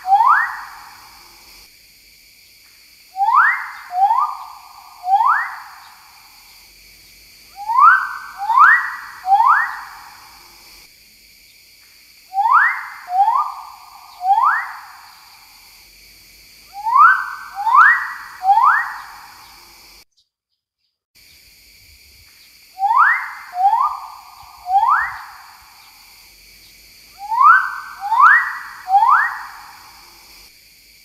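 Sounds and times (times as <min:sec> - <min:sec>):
bird whistling upward notes: 0:00.0 - 0:00.7, 0:03.2 - 0:06.0, 0:07.6 - 0:10.0, 0:12.3 - 0:14.9, 0:16.8 - 0:19.6, 0:22.8 - 0:25.6, 0:27.2 - 0:29.8
forest background hiss: 0:00.0 - 0:31.0.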